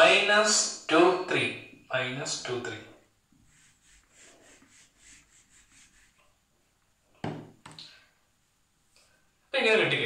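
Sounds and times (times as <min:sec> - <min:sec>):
whiteboard eraser rubbing: 0:03.3 - 0:06.4.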